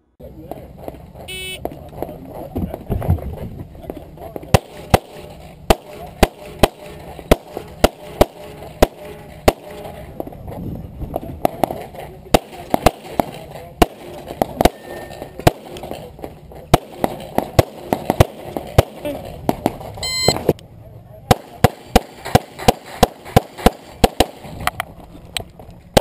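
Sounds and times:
pistol shots: 0:04.4 - 0:10.3, 0:11.1 - 0:20.5, 0:21.3 - 0:24.8.

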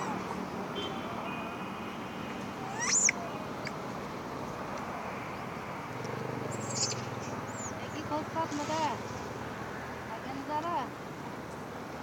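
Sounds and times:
faint low engine hum: 0:00.0 - 0:12.0
outdoor background hiss: 0:00.0 - 0:12.0
high-pitched animal chirps: 0:02.7 - 0:03.8, 0:06.6 - 0:07.7.

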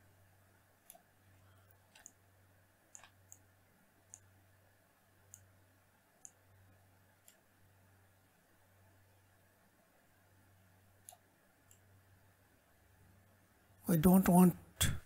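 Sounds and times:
steady low hum: 0:00.0 - 0:15.0
computer mouse clicks: 0:00.8 - 0:02.2, 0:02.9 - 0:04.3, 0:05.2 - 0:05.5, 0:06.2 - 0:06.4, 0:07.2 - 0:07.5, 0:11.0 - 0:11.9.

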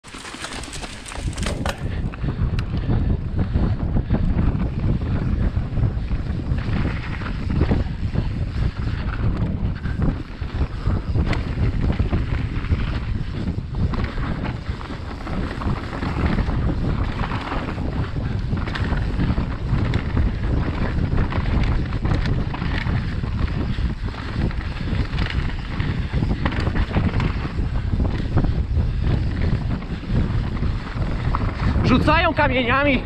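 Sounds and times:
tyres rumbling on dirt: 0:00.0 - 0:02.1
bike rattling: 0:00.0 - 0:33.0
wind on microphone: 0:00.0 - 0:33.0.

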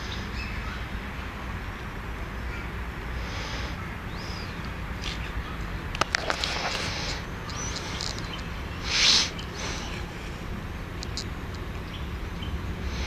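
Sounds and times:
low background rumble: 0:00.0 - 0:13.0
bird chirps: 0:04.0 - 0:05.7, 0:06.9 - 0:10.1, 0:11.8 - 0:12.6.

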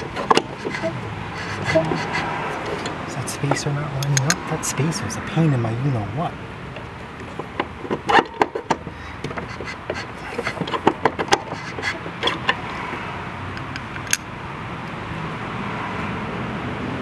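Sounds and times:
metallic clicks and knocks: 0:00.0 - 0:04.5, 0:06.7 - 0:14.3
steady background hum: 0:00.0 - 0:15.2.

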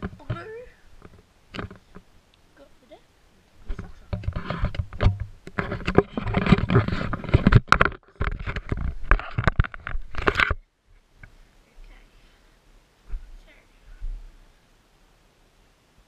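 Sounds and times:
knocks against microphone: 0:03.7 - 0:10.6.

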